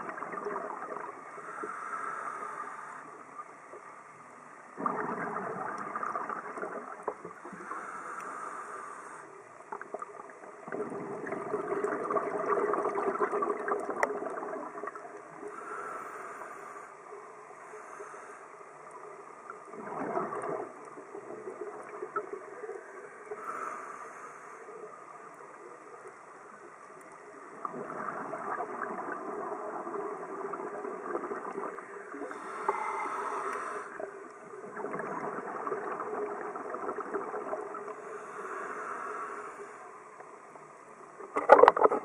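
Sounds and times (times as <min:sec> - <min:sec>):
underwater bubbling of exhaled breath: 0:00.0 - 0:03.6, 0:04.6 - 0:39.9.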